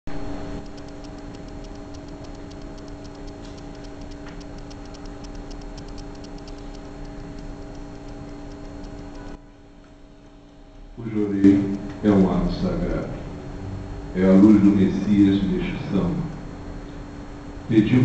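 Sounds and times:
steady hum: 0:00.1 - 0:18.0
fast even ticking: 0:00.4 - 0:09.4, 0:10.2 - 0:13.2.

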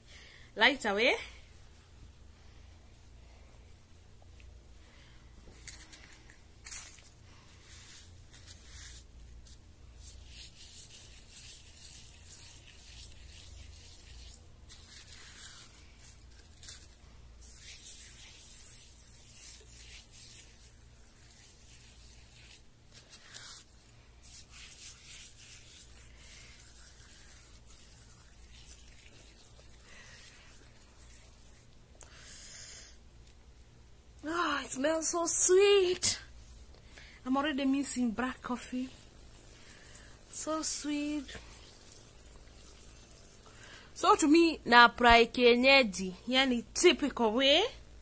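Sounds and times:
low steady hum: 0:00.0 - 0:48.0
gritty scrub rubbed on skin: 0:05.6 - 0:33.0, 0:37.3 - 0:44.4.

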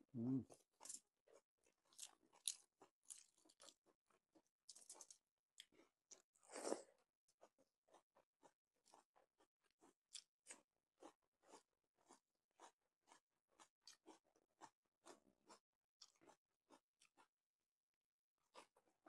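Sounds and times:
crunching and chewing crisp food: 0:00.2 - 0:17.4, 0:18.4 - 0:19.0.

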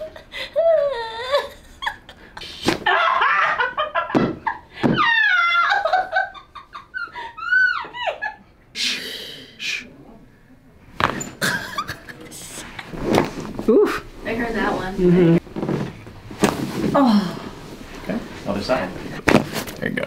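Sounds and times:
woman laughing and squealing: 0:02.8 - 0:08.5.

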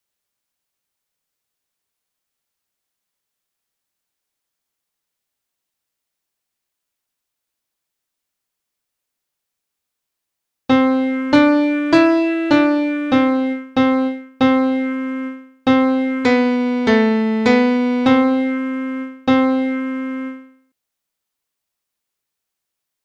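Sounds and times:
slow piano melody: 0:10.7 - 0:20.6.

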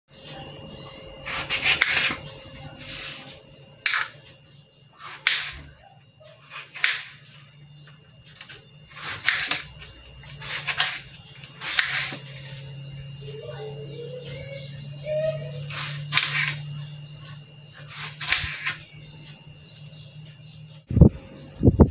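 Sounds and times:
faint steady hum: 0:00.1 - 0:21.9
knife slicing tomatoes: 0:10.4 - 0:12.2.

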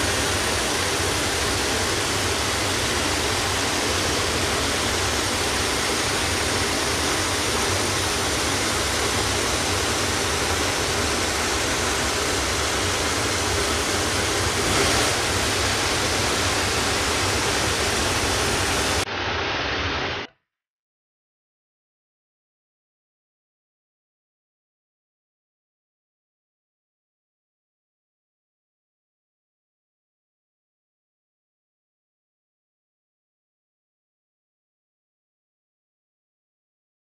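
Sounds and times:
heavy rain: 0:00.0 - 0:20.3.

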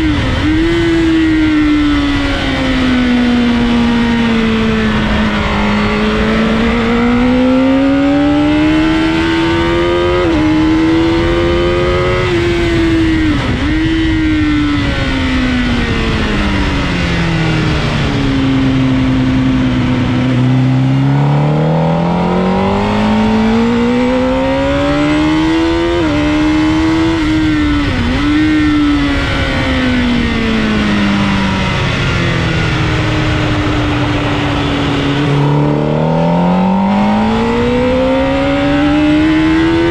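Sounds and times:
motorcycle engine accelerating: 0:00.0 - 0:39.9
wind rush: 0:27.2 - 0:39.9.

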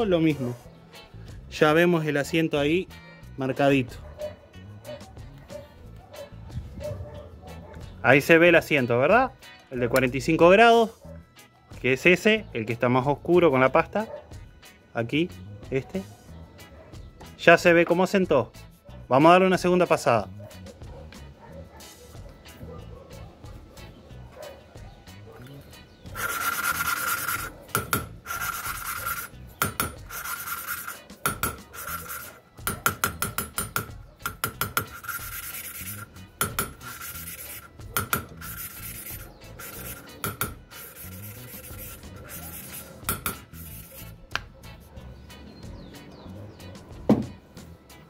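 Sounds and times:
valve lapping gritty rasping: 0:25.4 - 0:33.2, 0:34.2 - 0:44.2.

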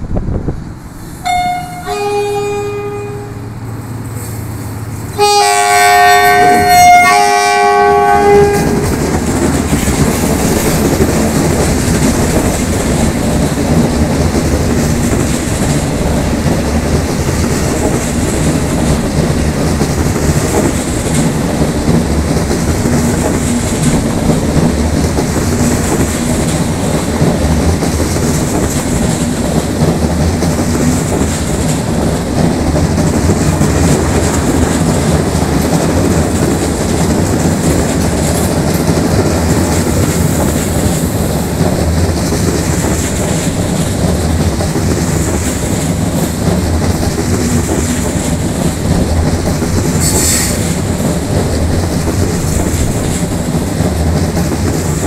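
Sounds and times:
train rumbling past: 0:00.0 - 0:55.0
train horn: 0:01.2 - 0:03.6, 0:05.2 - 0:08.9.

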